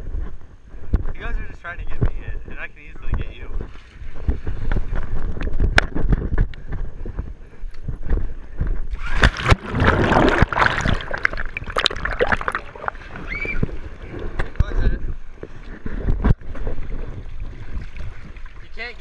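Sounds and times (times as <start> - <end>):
wind rumble: 0.0 - 18.7
splash into swimming pool: 8.9 - 13.7
churning gurgling water: 8.9 - 19.0.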